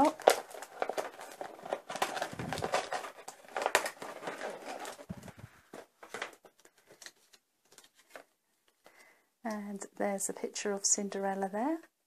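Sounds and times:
packaging crinkling and rustling: 0.0s - 8.4s.

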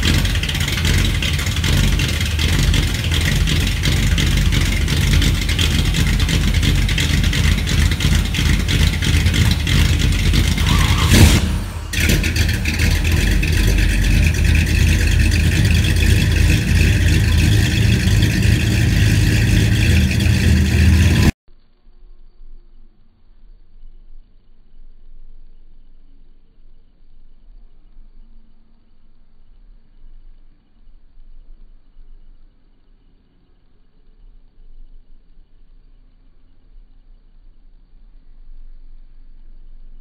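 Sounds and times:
car engine idling: 0.0s - 21.4s.

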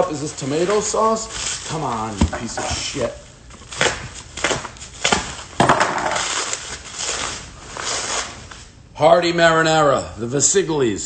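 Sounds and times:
paper crinkling: 0.0s - 8.7s
paper ripping: 3.0s - 8.7s.

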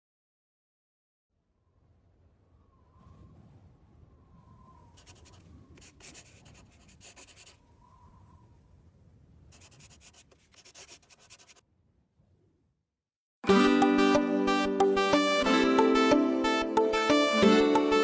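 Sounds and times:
faint scratchy rubbing: 4.8s - 7.8s, 9.4s - 11.6s.

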